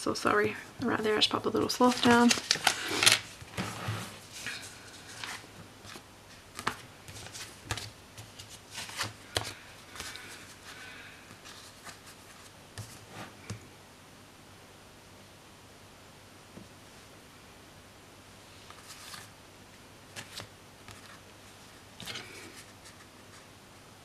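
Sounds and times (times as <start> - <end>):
paper rustling: 1.6 - 13.6, 18.6 - 19.3, 20.1 - 23.5.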